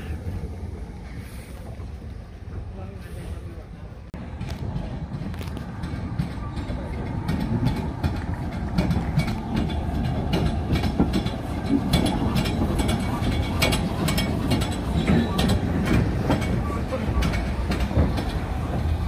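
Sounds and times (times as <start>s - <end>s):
steam locomotive rumble: 0.0s - 19.0s
wheels clanking: 4.4s - 19.0s.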